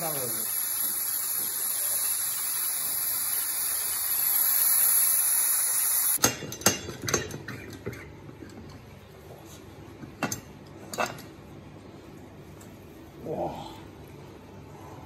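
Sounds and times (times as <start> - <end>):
steam hissing from pressure cooker: 0.0 - 6.2.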